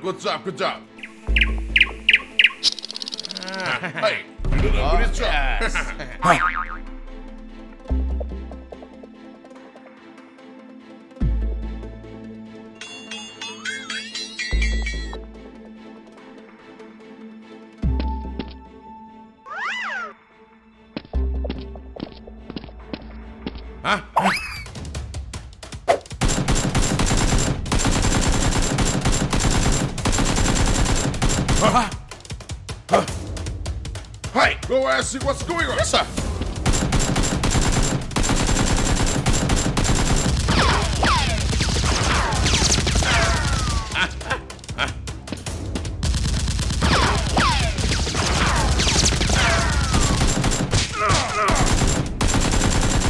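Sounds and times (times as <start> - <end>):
rapid automatic gunfire: 26.2 - 31.8, 36.6 - 43.9, 46.0 - 50.8, 51.4 - 53.0.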